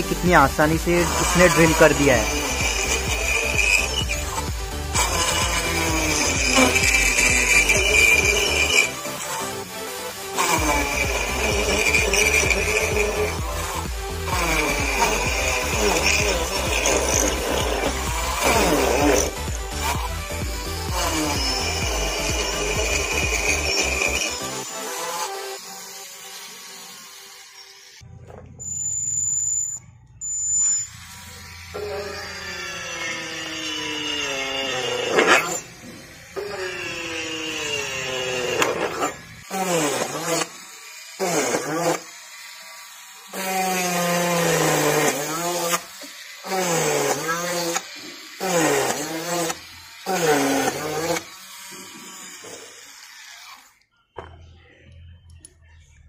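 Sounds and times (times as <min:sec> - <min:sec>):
background music: 0:00.0 - 0:27.2
drill motor whining: 0:00.0 - 0:55.4.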